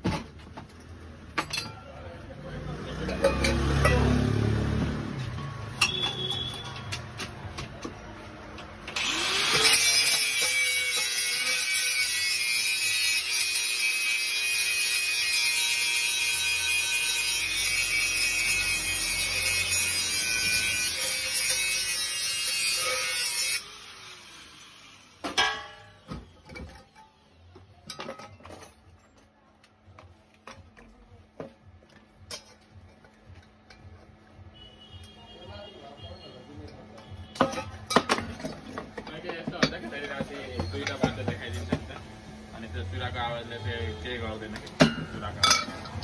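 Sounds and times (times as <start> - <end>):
metal pan clinks and taps: 3.0 - 4.2, 5.8 - 6.8, 44.8 - 46.0
grinder winding down: 8.9 - 13.3
angle grinder grinding metal: 8.9 - 26.1.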